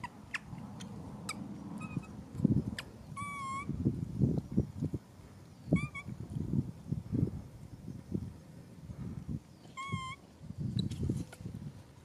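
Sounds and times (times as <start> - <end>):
infant monkey whimpering: 3.2 - 3.7, 9.8 - 10.2.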